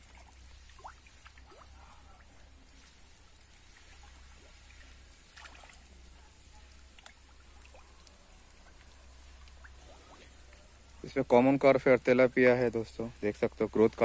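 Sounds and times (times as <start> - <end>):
fish splashing at water surface: 0.0 - 11.0.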